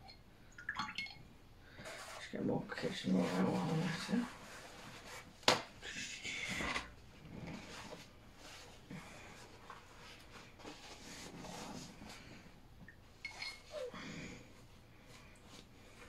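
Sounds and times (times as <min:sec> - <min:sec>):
paper towel rustling: 0:01.7 - 0:12.6.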